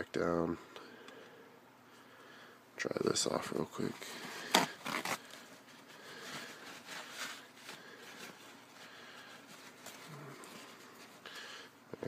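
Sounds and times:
paper towel rubbing: 4.0 - 11.2.

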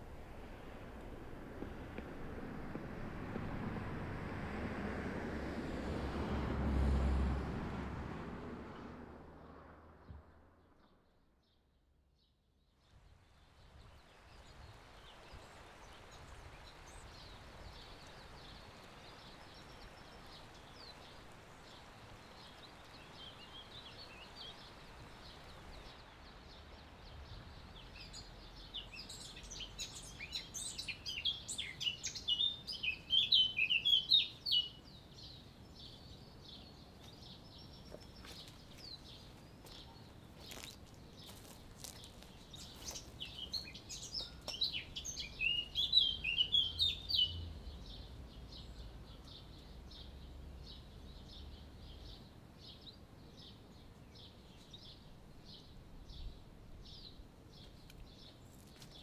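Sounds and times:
steady outdoor hiss: 0.0 - 9.8, 12.8 - 59.0
small birds chirping: 13.7 - 59.0.

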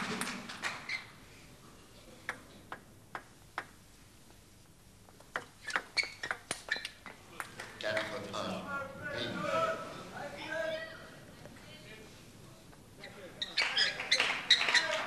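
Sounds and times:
table tennis ball clicking: 2.2 - 3.8, 5.1 - 7.5.

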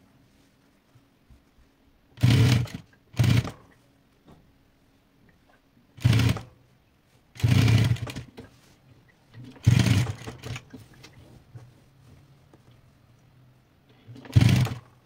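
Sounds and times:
industrial sewing machine stitching: 2.2 - 3.6, 6.0 - 6.6, 7.4 - 8.3, 9.5 - 10.6, 14.1 - 15.0.

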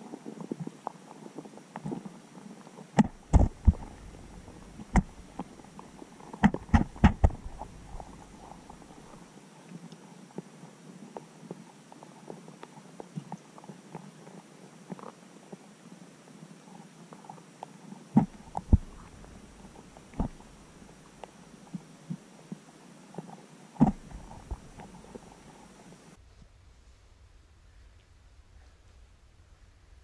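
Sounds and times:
low underwater thumps: 3.0 - 5.6, 6.4 - 9.2, 18.2 - 21.0, 23.8 - 25.2
small underwater clicks and taps: 3.0 - 9.2, 17.6 - 22.6, 23.2 - 25.8.

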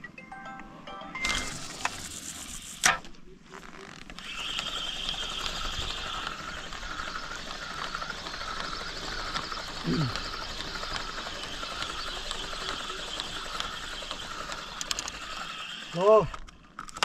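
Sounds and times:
fishing reel cranking whir: 1.2 - 3.0, 3.6 - 17.0
fishing reel click: 4.2 - 16.5.

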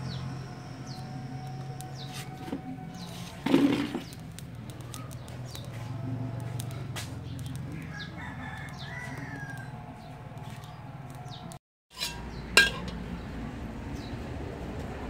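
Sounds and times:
rooster crowing: 0.1 - 4.2, 5.6 - 7.0, 7.7 - 11.6
twigs crackling in fire: 0.8 - 11.6
metal spatula striking wok: 11.9 - 13.1.

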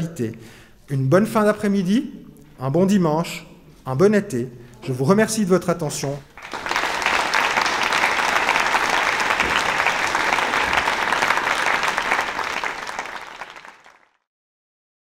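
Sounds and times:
audience applauding: 6.3 - 14.2.

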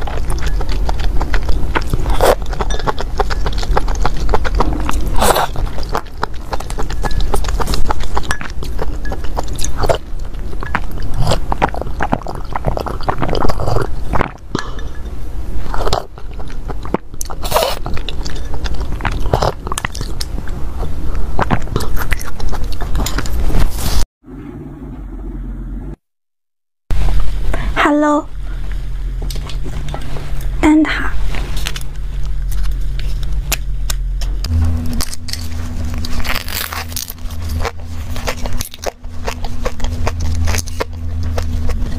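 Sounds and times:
slurping and swallowing: 0.0 - 14.9
low hum: 0.0 - 26.0, 26.9 - 41.9.

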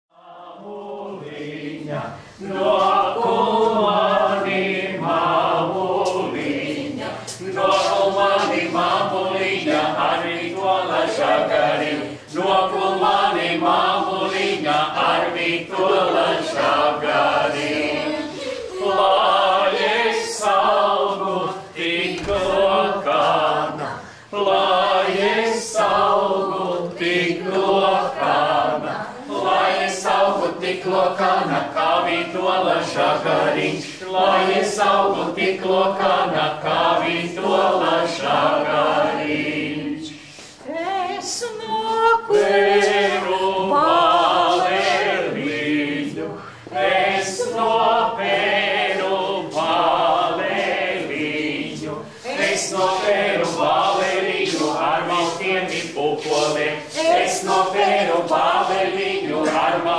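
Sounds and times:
group singing unaccompanied: 0.1 - 59.9
singers breathing: 2.1 - 2.4, 24.0 - 24.4, 40.1 - 40.6, 46.4 - 46.8.

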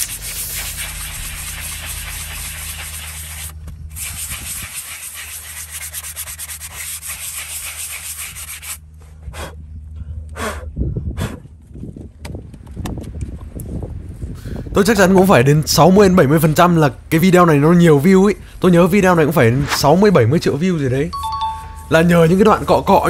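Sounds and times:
sanding block rubbing hoof: 0.0 - 8.8.

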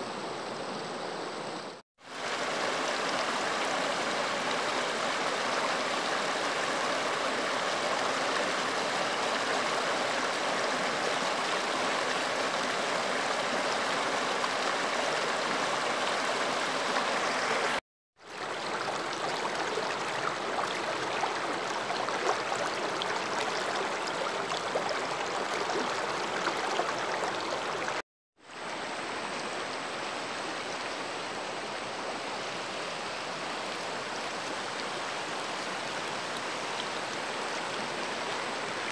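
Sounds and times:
river water rushing over boulders: 2.1 - 28.0.

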